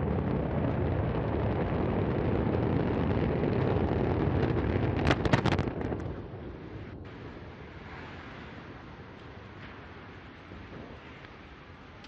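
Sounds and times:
rumbling roar of rocket fire: 0.0s - 12.0s
sharp cracks: 4.4s - 6.1s.

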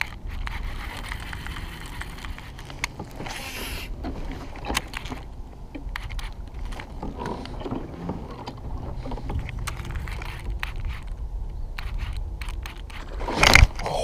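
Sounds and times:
water around a kayak: 0.0s - 11.5s
wind: 0.0s - 14.0s.

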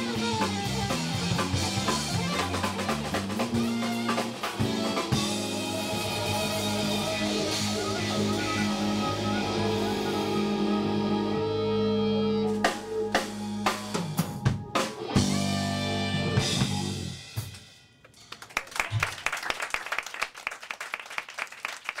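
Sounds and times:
live band holding a chord: 0.0s - 17.5s.

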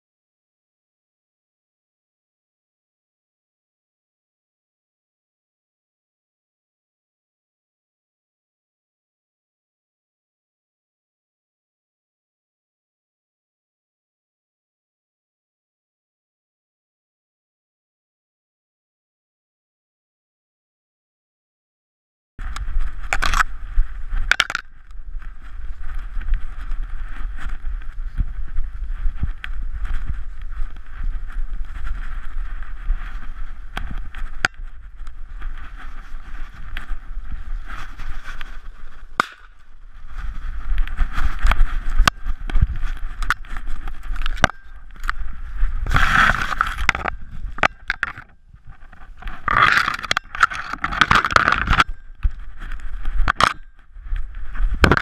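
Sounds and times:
camera handling rumble: 22.4s - 55.0s
sharp clicks and knocks: 24.3s - 24.7s
stems scraping over camera: 25.2s - 55.0s.

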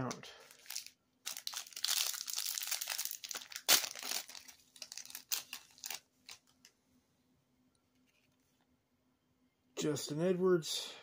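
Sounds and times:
foil wrapper crinkling: 0.5s - 6.6s.

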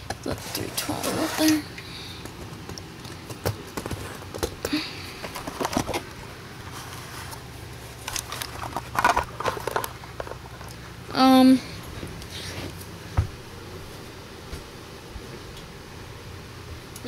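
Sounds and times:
handling clicks and rustles: 0.0s - 10.8s.

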